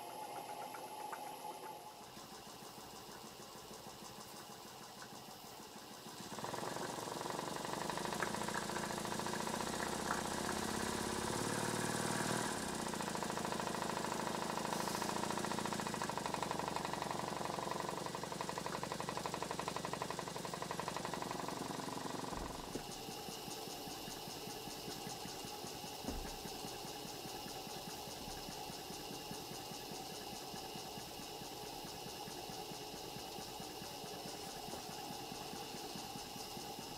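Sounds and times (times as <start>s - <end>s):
steam engine exhaust beats: 0.0s - 36.9s
gas burner hissing: 6.8s - 18.4s.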